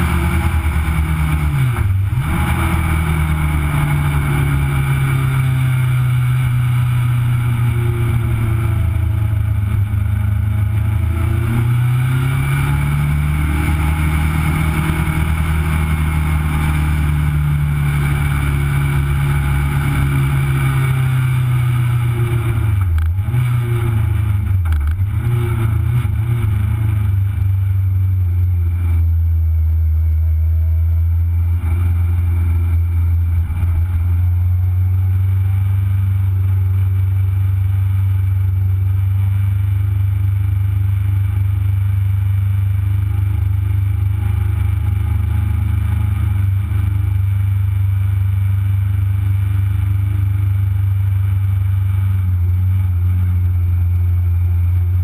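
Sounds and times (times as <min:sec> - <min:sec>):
racing car engine revving: 0:00.0 - 0:27.6.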